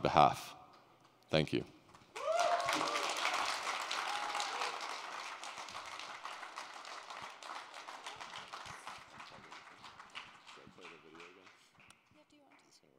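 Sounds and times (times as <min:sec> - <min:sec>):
audience applauding: 0:01.9 - 0:11.9.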